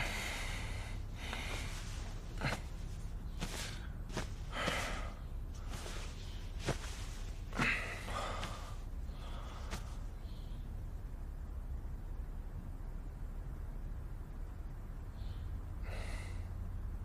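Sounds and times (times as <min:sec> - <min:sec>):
man sighing and breathing heavily: 0:00.0 - 0:10.0
steady low hum: 0:00.0 - 0:17.0
person turning over in bed: 0:01.3 - 0:08.8, 0:09.6 - 0:10.0.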